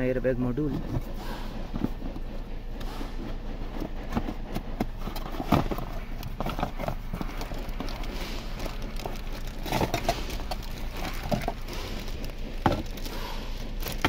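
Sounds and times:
plastic bag rustling: 4.9s - 14.0s.

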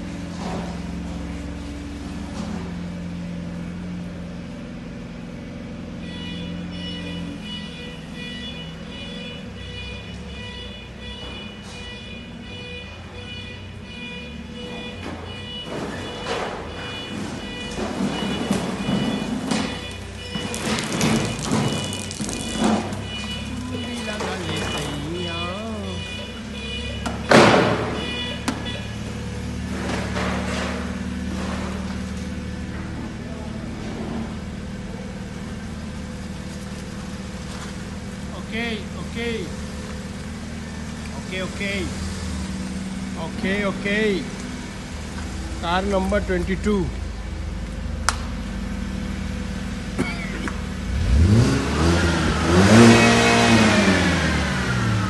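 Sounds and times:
car engine idling and revving: 0.0s - 55.0s
engine running at low revs: 28.4s - 55.0s.

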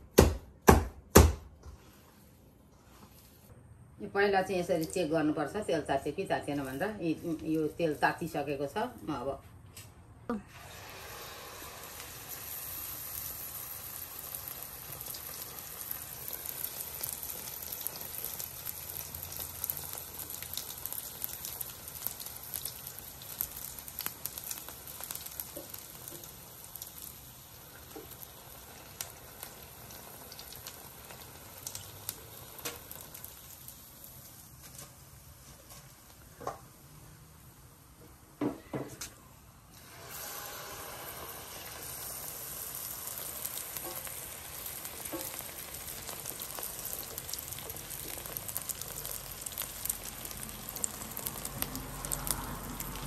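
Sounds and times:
batter frying in hot oil: 10.5s - 38.0s, 39.6s - 53.0s
small crackling pops: 16.4s - 34.9s, 43.2s - 53.0s.

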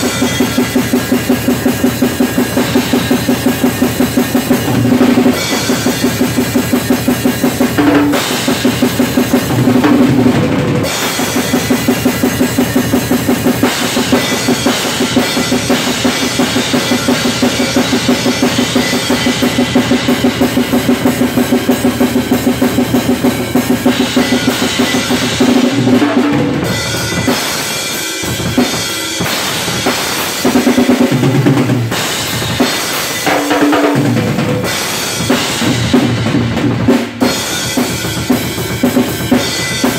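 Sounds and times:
cymbal crashes: 0.0s - 9.6s, 10.8s - 30.8s
bass drum: 0.0s - 27.7s, 28.3s - 39.9s.

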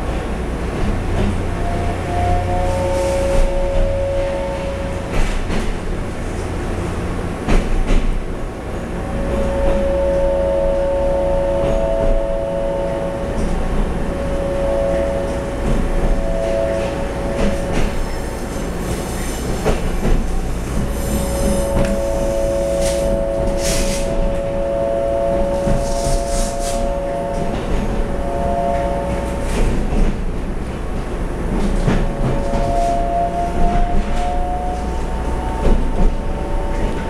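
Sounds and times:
train rumble: 0.0s - 37.0s
high-pitched wheel squeals: 1.6s - 5.4s, 9.1s - 30.1s, 31.8s - 37.0s
electrical whine: 2.0s - 5.2s, 8.8s - 30.6s.

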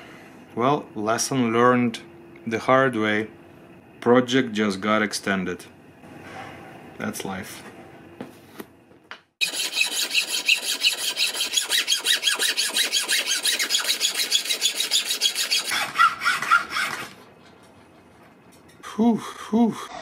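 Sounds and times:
hacksaw cutting antler: 9.4s - 17.2s.

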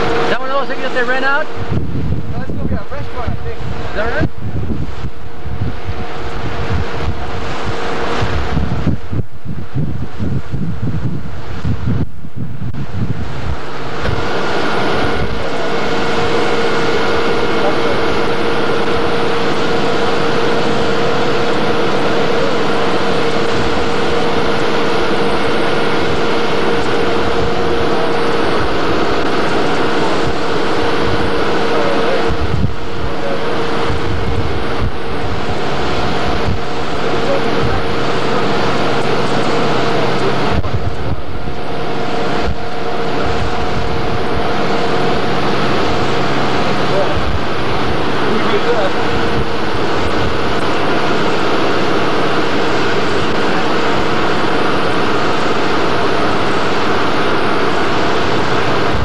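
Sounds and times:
motorboat engine droning: 0.0s - 59.0s
wind noise on microphone: 0.0s - 59.0s.

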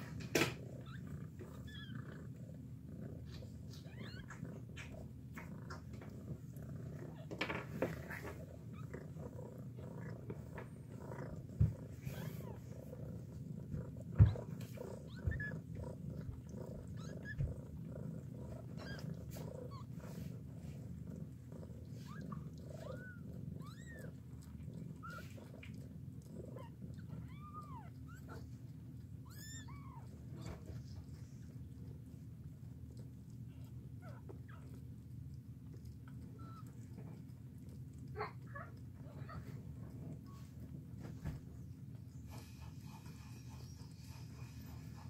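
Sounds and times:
cat purring: 0.0s - 45.0s
kitten squeaks: 1.6s - 2.0s, 3.7s - 4.4s, 15.0s - 15.6s, 16.8s - 17.5s, 18.8s - 19.1s, 22.0s - 24.1s, 26.5s - 28.5s, 29.2s - 30.6s.

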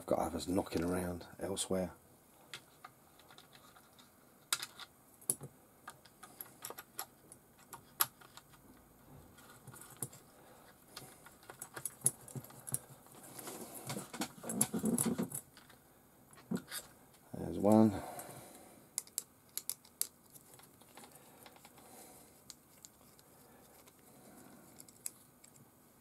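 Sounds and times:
screwdriver and parts clicking on plastic: 2.5s - 8.6s, 18.9s - 23.2s.

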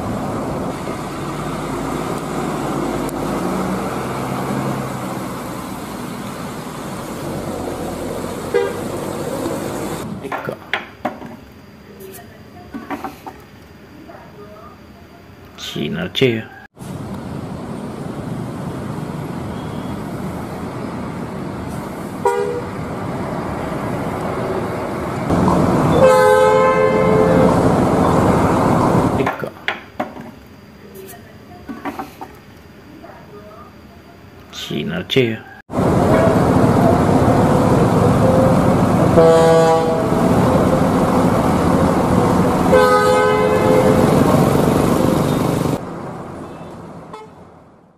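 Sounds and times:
buses running past: 0.0s - 10.5s, 16.7s - 29.5s, 35.7s - 47.9s
traffic: 0.0s - 47.9s
long multi-tone horn blast: 8.4s - 9.4s, 22.2s - 22.8s, 25.8s - 28.0s, 35.9s - 45.8s, 47.1s - 47.4s
short bus horn toot: 8.5s - 8.9s, 22.2s - 22.7s, 25.9s - 27.6s, 38.2s - 40.3s, 42.7s - 44.3s, 46.5s - 47.4s.

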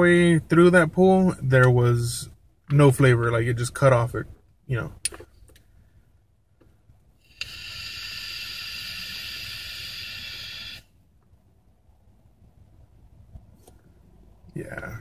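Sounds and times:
vape draw hiss: 7.2s - 10.9s.

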